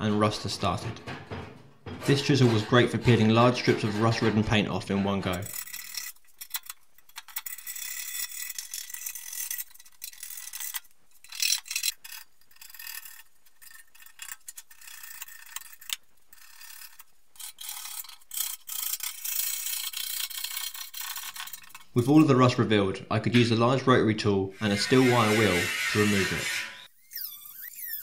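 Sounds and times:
chisel scraping paint off metal: 0:01.3 - 0:06.2, 0:24.6 - 0:26.9.

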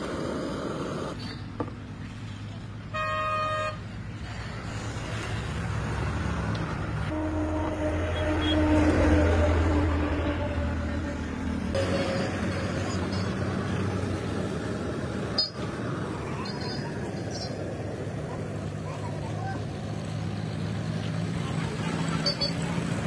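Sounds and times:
low road rumble: 0:00.0 - 0:23.0
vehicle engine passing: 0:04.2 - 0:23.0.

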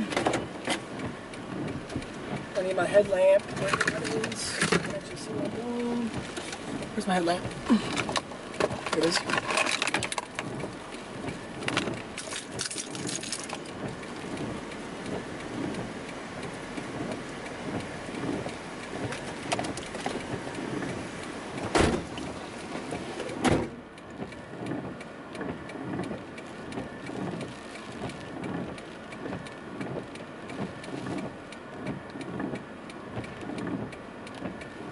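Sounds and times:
rain on a car: 0:00.0 - 0:34.9
car door opening and slamming: 0:21.6 - 0:22.3, 0:22.9 - 0:23.8.

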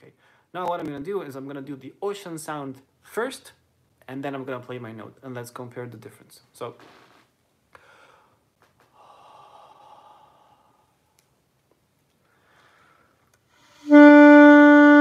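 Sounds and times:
breathy exhale: 0:07.8 - 0:10.9, 0:12.3 - 0:13.9.

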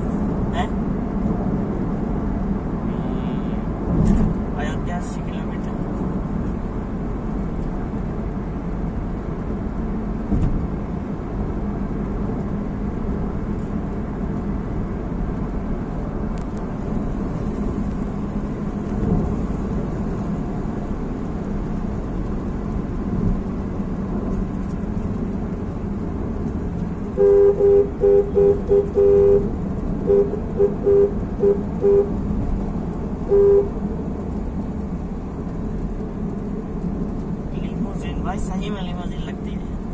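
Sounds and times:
car engine and tyre noise: 0:00.0 - 0:39.9
car horn short honks: 0:27.2 - 0:32.2, 0:33.3 - 0:33.7.

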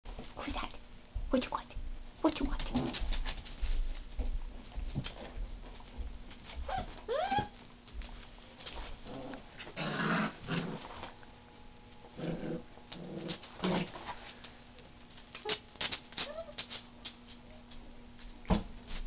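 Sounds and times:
puppies growling: 0:02.6 - 0:03.4, 0:08.8 - 0:11.2, 0:12.0 - 0:14.2
puppy whining: 0:06.6 - 0:07.6, 0:15.3 - 0:16.8.

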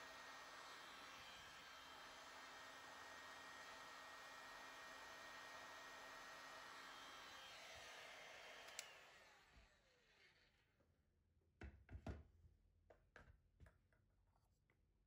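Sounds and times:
fan whining down: 0:00.0 - 0:09.8
heat gun blowing: 0:00.0 - 0:10.2.

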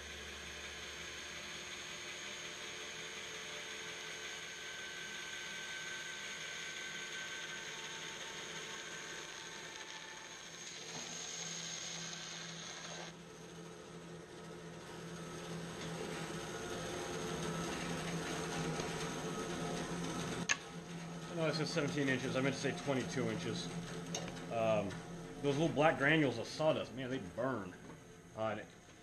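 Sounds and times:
bandsaw cutting wood: 0:05.3 - 0:13.2.

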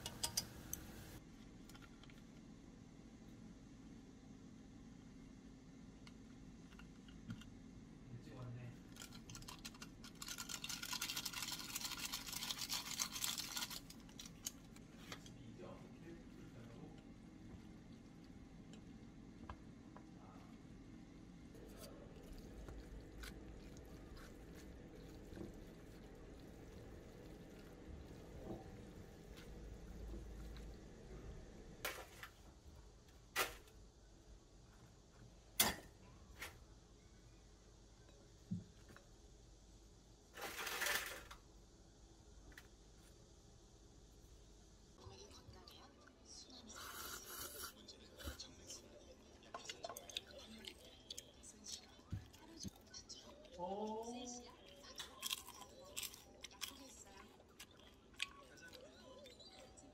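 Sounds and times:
metal tongs clicking on ceramic bowl: 0:00.0 - 0:00.8.

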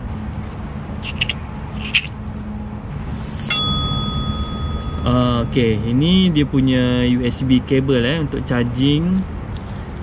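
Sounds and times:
low steady hum: 0:00.0 - 0:08.2
bright bell ding: 0:03.2 - 0:05.8.

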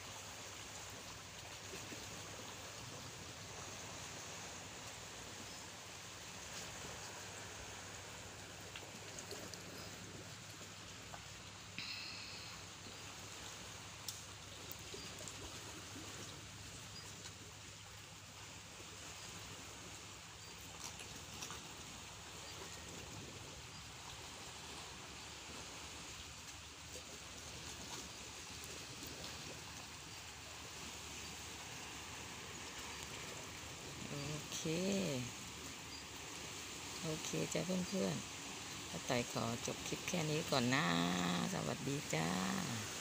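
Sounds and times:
sea waves lapping on rocks: 0:00.0 - 0:43.0.

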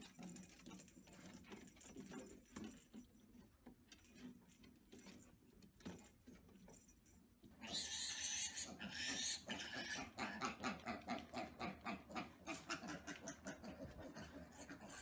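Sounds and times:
piglet squealing: 0:07.6 - 0:15.0
piglets grunting: 0:07.6 - 0:15.0.

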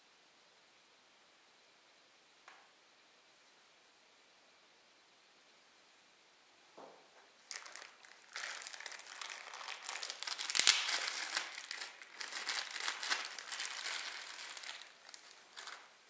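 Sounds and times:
plastic bag crinkling: 0:07.4 - 0:16.0.

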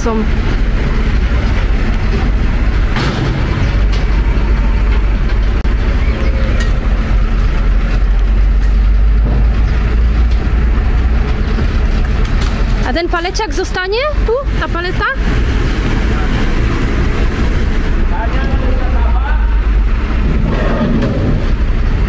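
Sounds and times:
vehicle engine rumbling: 0:00.0 - 0:22.0.

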